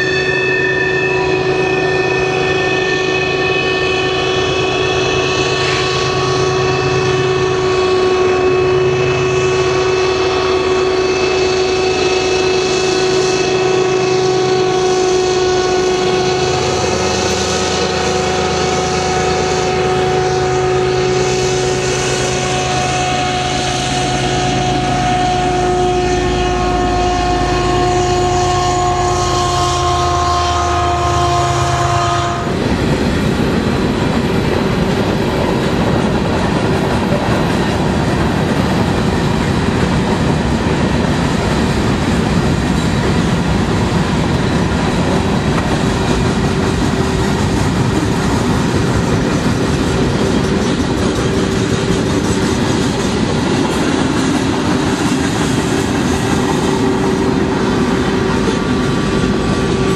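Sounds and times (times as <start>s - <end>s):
locomotive engine drone: 0.0s - 59.9s
wheel whine: 32.2s - 59.9s.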